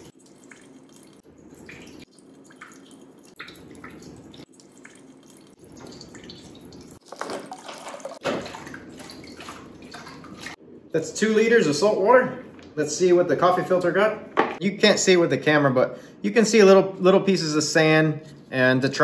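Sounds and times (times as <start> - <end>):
water trickling into glass dish: 0.0 - 10.5.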